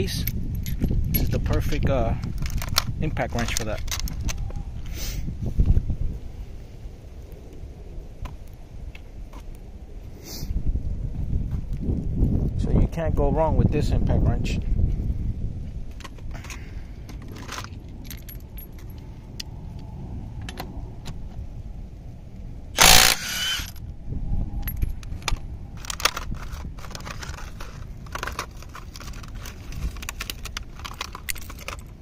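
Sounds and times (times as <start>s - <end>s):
metallic clinks and jangles: 18.0s - 19.1s
impact wrench burst: 22.8s - 23.8s.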